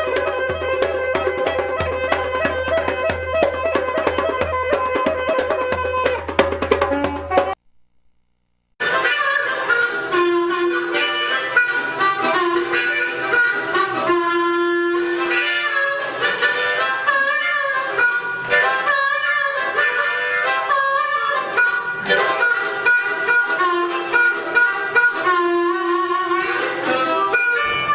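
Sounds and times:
djembe drum beats: 0.0 - 7.6
wind instrument melody: 0.0 - 7.6, 8.8 - 27.9.

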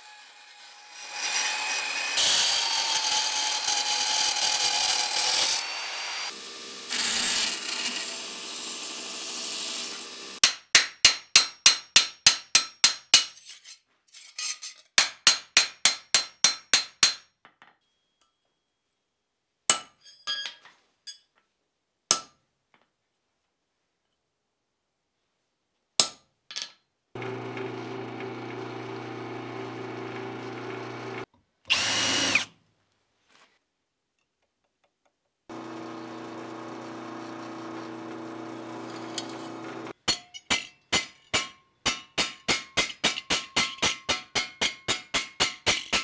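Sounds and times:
band saw cutting steel: 0.0 - 10.4, 27.2 - 32.5, 35.5 - 40.0.

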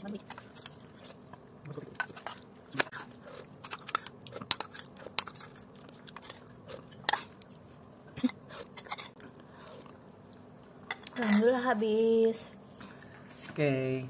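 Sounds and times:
chewing: 0.2 - 10.8
spoon scraping a bowl: 2.0 - 7.3, 8.2 - 9.2.

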